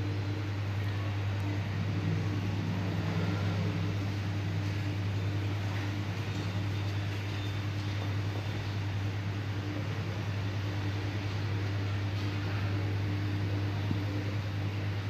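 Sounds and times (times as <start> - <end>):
faint constant tone: 0.0 - 15.0
low machine hum: 0.0 - 15.0.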